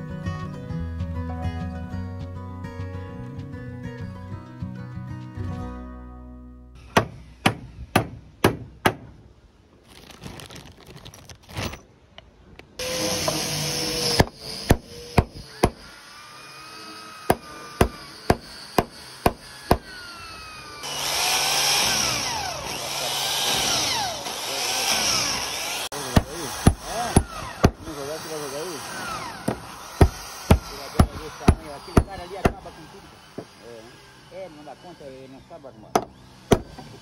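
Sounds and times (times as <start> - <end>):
power tool running: 6.8 - 8.0, 12.8 - 37.0
hammer knocking on wood: 7.0 - 9.2, 29.4 - 32.6.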